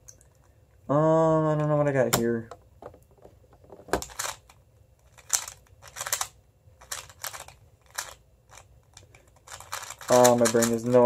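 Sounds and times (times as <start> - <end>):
plastic cube clicking: 5.2 - 11.0.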